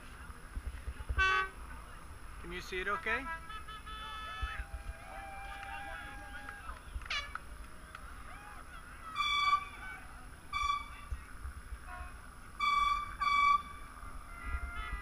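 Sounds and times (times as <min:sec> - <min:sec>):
low wind rumble: 0:00.0 - 0:15.0
boat horn blasts: 0:01.2 - 0:01.6, 0:02.9 - 0:04.7, 0:09.1 - 0:11.1, 0:11.9 - 0:15.0.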